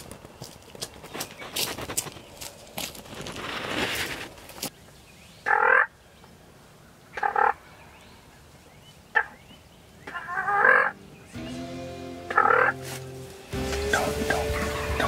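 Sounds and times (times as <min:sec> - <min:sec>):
turkeys gobbling: 0:05.5 - 0:05.9, 0:07.2 - 0:07.6, 0:10.0 - 0:11.0, 0:12.3 - 0:13.0, 0:13.7 - 0:15.0.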